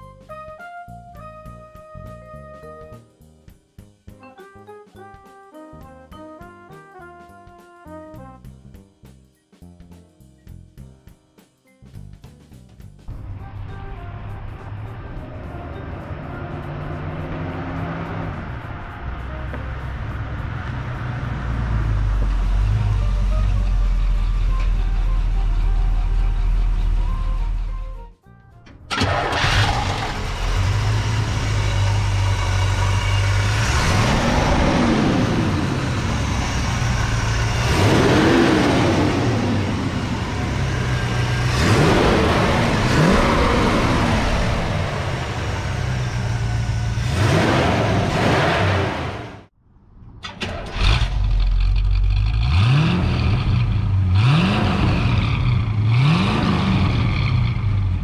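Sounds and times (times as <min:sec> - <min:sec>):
truck engine idling and revving: 0:12.8 - 0:49.6, 0:50.2 - 0:58.0.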